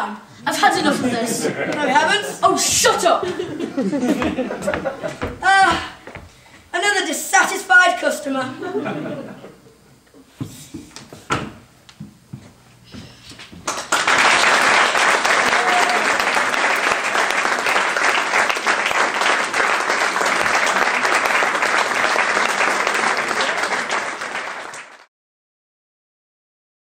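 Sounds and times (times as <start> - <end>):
audience applauding: 3.3 - 5.4, 13.6 - 25.1.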